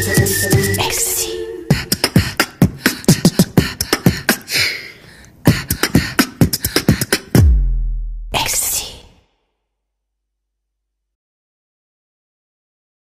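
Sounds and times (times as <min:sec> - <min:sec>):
beatboxing kicks and snares: 0:00.0 - 0:01.0, 0:01.7 - 0:04.7, 0:05.4 - 0:08.9
deep falling bass boom: 0:07.4 - 0:08.4.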